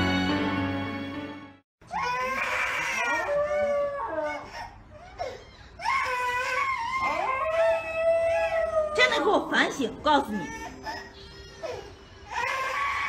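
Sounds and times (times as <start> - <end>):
dog howling: 2.2 - 4.5, 6.4 - 9.4.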